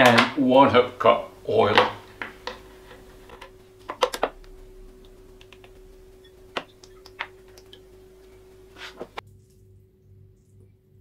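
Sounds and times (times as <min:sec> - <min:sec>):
faint steady hum: 0:00.0 - 0:11.0
cup clicking on metal bowl: 0:01.7 - 0:07.9.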